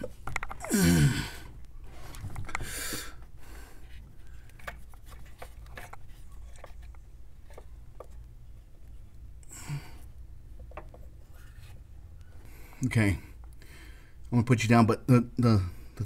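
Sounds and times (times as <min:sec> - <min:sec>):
low steady hum: 0:00.0 - 0:16.0
rubbing and light plastic clicks: 0:03.2 - 0:09.3.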